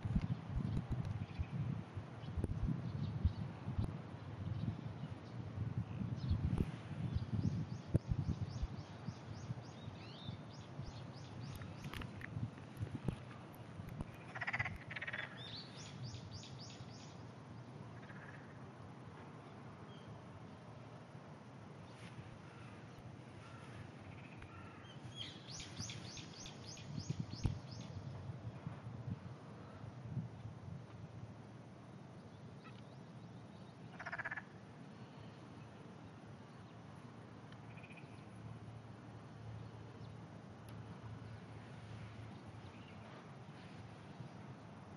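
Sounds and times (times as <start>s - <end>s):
distant frogs croaking: 14.0s - 17.2s, 17.8s - 18.8s, 22.4s - 26.7s, 33.7s - 35.0s, 37.5s - 39.4s
frog pulsed croak: 14.2s - 15.4s, 18.0s - 18.6s, 33.9s - 34.6s, 37.7s - 38.3s
faint short frog call: 18.0s - 18.6s, 33.9s - 34.6s.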